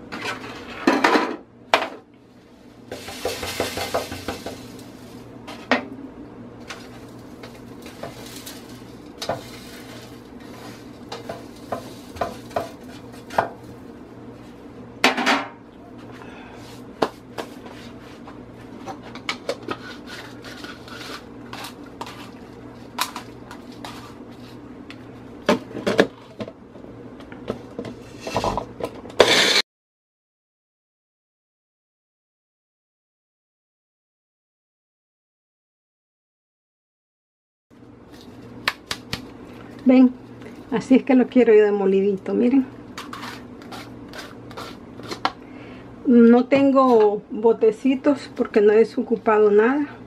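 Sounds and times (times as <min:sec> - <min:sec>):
scraping on metal baking sheet: 0:06.7 - 0:13.4, 0:19.6 - 0:22.4, 0:23.7 - 0:24.6, 0:28.0 - 0:28.6, 0:29.2 - 0:29.6, 0:43.0 - 0:45.3
blender burst: 0:29.2 - 0:29.6.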